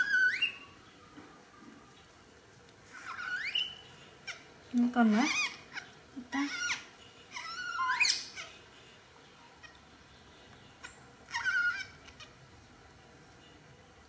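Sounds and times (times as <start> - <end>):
baby monkey crying: 0.0 - 0.6, 2.9 - 4.5, 5.2 - 8.6, 10.8 - 12.4.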